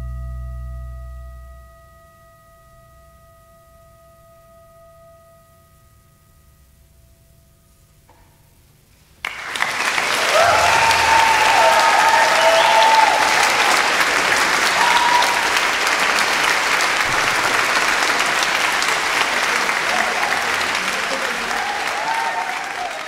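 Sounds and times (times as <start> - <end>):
faint held tone: 0.0 - 8.7
audience applause: 9.2 - 23.0
audience cheering: 9.2 - 23.0.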